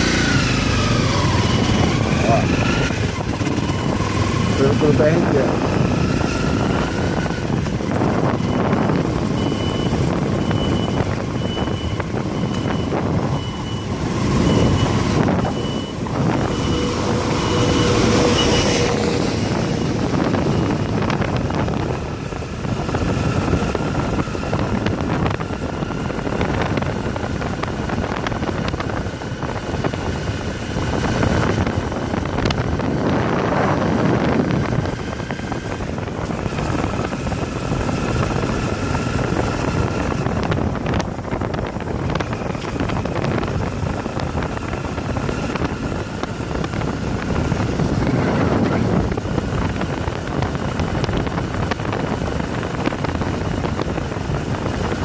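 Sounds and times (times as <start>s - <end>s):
motorcycle engine running: 0.0s - 55.0s
wind rushing: 0.0s - 55.0s
reversing alarm beeping: 8.2s - 21.0s.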